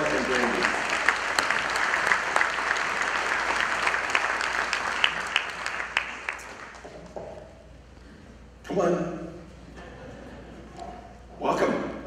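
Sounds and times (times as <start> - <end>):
congregation applauding: 0.0 - 7.0.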